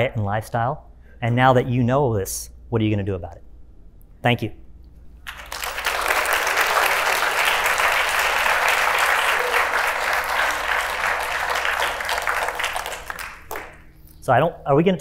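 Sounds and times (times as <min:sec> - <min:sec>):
audience applauding: 0:05.3 - 0:14.0.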